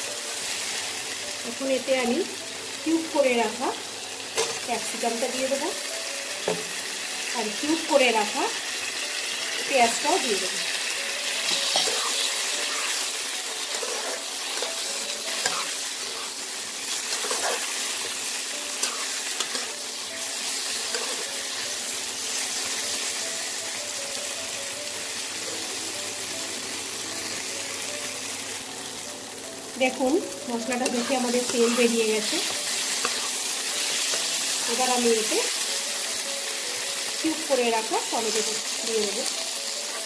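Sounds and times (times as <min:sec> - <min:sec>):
vegetables sizzling in oil: 0:00.0 - 0:40.0
spatula stirring: 0:11.4 - 0:21.6, 0:30.6 - 0:34.9.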